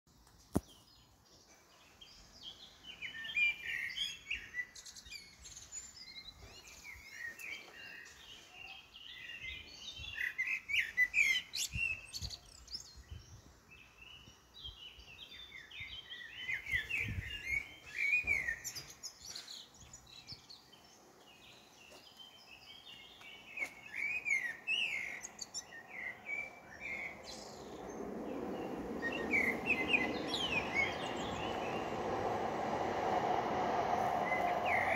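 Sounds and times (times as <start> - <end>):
small birds chirping: 0.2 - 34.9
low rushing noise: 25.8 - 34.9.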